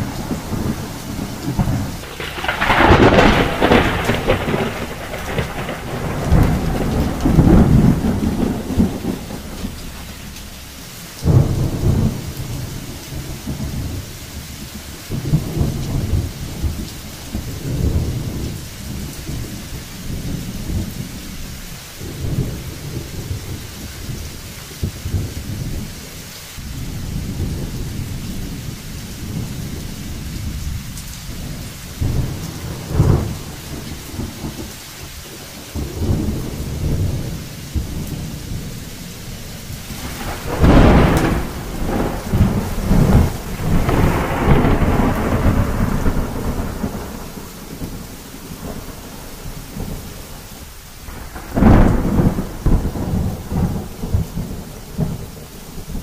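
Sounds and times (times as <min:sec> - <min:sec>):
sharp thunder clap: 0:00.0 - 0:14.1, 0:31.3 - 0:34.7, 0:39.8 - 0:50.0, 0:51.1 - 0:55.3
low rumbling thunder: 0:00.0 - 0:56.0
steady rain hissing: 0:00.0 - 0:56.0.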